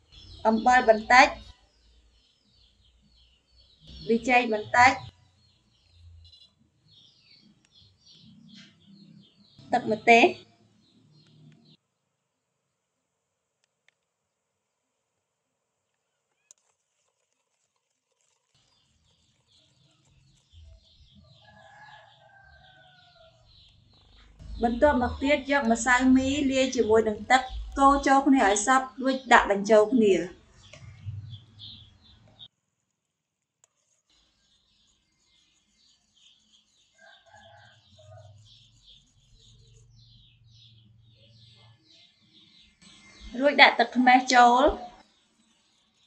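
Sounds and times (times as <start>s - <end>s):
faint chickens clucking: 36.8s - 43.4s.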